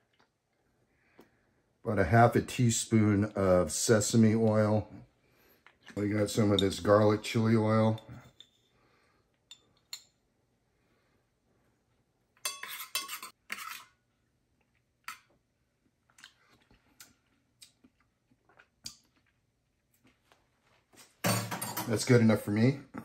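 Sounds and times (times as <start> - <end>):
metal spoon clinking on glass and metal: 12.4 - 13.8.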